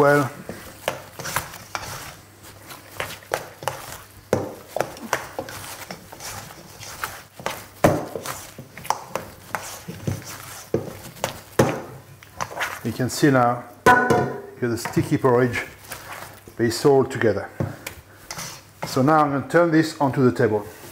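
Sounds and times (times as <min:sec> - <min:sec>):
hands squelching wet dough: 0:00.0 - 0:13.6, 0:14.6 - 0:19.3.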